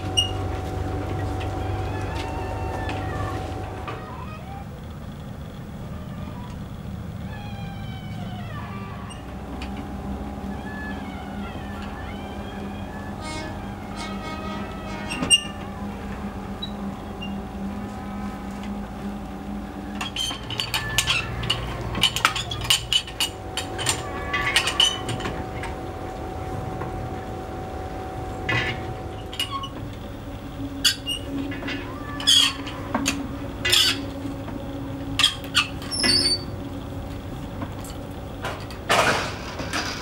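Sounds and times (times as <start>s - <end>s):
winch gears clinking and clicking: 0.0s - 40.0s.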